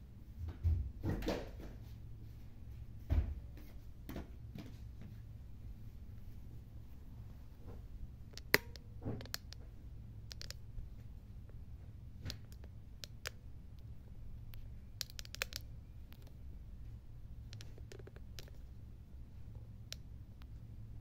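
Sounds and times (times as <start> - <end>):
low steady hum: 0.0 - 21.0
small clicks and taps: 8.3 - 10.7, 12.2 - 13.9, 14.5 - 16.4, 17.5 - 18.7, 19.5 - 20.6.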